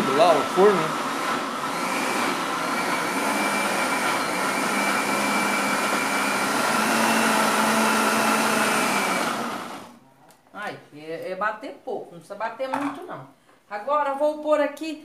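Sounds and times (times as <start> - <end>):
blender running: 0.0 - 10.0.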